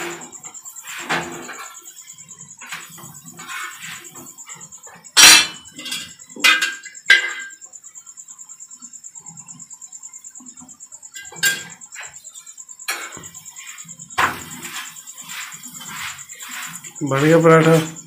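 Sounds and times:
metal kitchen knocks and clatters: 1.0s - 1.8s, 2.6s - 7.6s, 14.2s - 15.0s
rapid high-pitched chirping: 1.6s - 18.0s.

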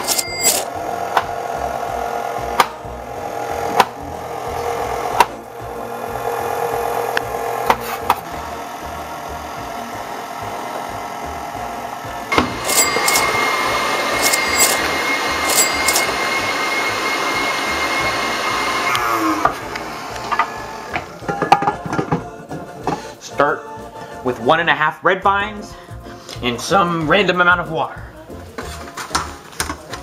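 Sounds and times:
stand mixer motor whining: 0.0s - 21.2s.

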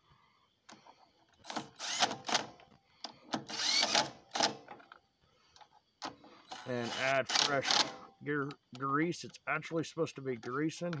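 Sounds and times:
impact tool motor whine: 1.4s - 2.6s, 3.4s - 4.7s.

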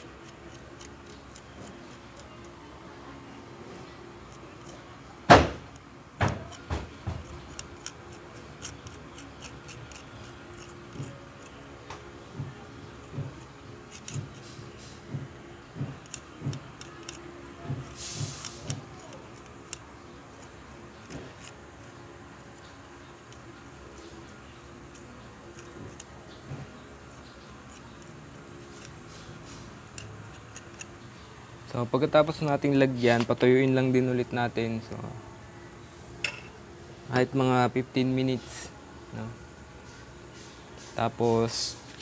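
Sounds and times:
knocks on workbench: 5.3s - 5.6s.

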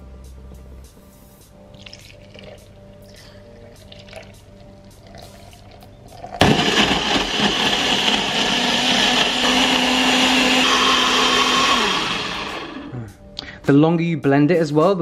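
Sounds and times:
blender running: 6.4s - 12.9s.

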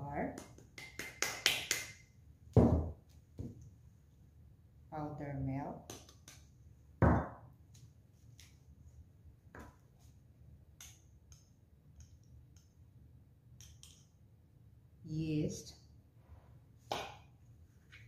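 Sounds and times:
spice jar clicks and taps: 5.8s - 6.6s, 13.5s - 14.2s.

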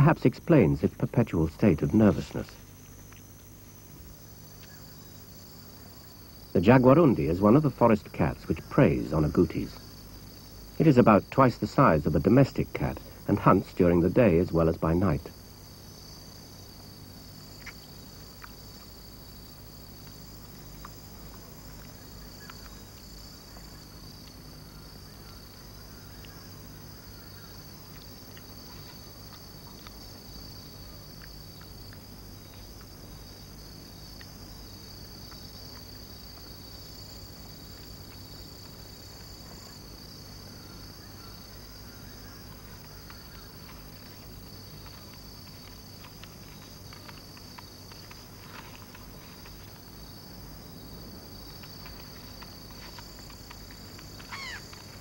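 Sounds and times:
forest insects chorus: 0.0s - 55.0s
faint ticks: 2.4s - 3.4s, 19.9s - 33.1s, 34.0s - 39.8s, 41.2s - 50.4s, 51.2s - 55.0s.

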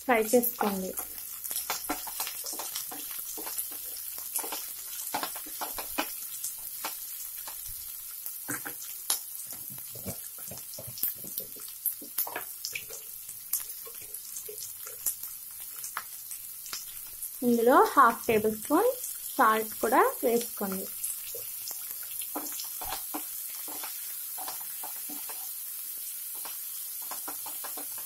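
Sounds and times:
vegetables sizzling in oil: 0.0s - 28.0s
wooden spatula stirring pan: 0.4s - 7.8s, 21.2s - 28.0s.

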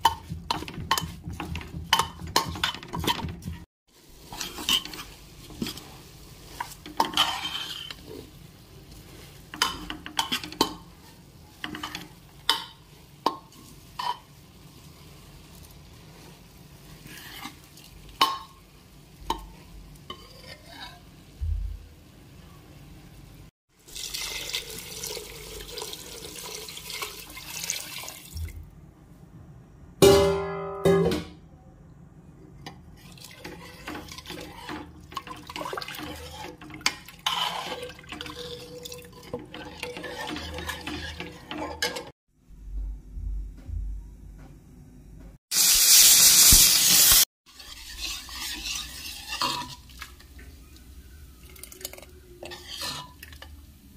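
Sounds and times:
ladle stirring liquid: 0.0s - 14.2s, 32.6s - 42.1s, 47.5s - 50.6s, 51.4s - 53.5s
metal ladle scraping in pan: 0.0s - 14.3s, 16.0s - 18.5s, 19.4s - 21.3s, 32.8s - 42.1s, 46.6s - 50.5s, 51.8s - 53.5s
liquid pouring into pan: 23.8s - 28.6s.

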